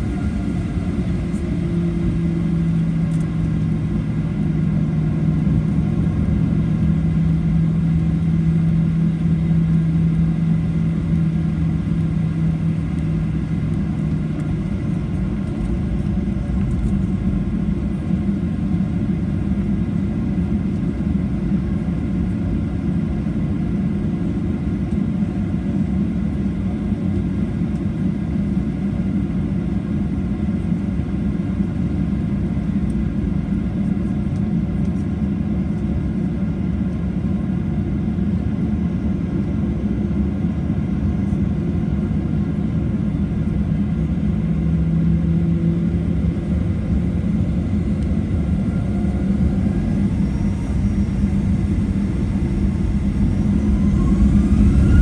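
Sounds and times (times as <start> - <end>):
jet engine rumble in cabin: 0.0 - 55.0
low steady hum: 35.8 - 55.0.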